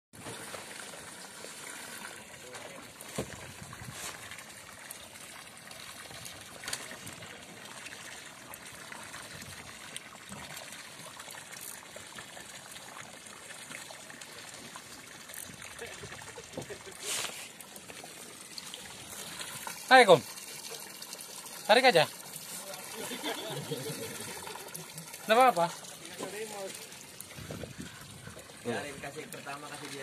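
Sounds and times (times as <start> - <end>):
waves lapping against boat hull: 0.2 - 4.8.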